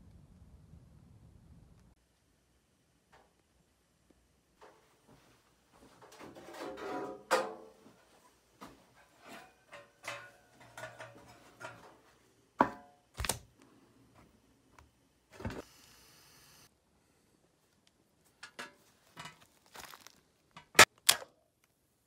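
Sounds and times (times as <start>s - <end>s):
knocks and clatters of handling: 4.6s - 13.4s, 18.3s - 20.9s.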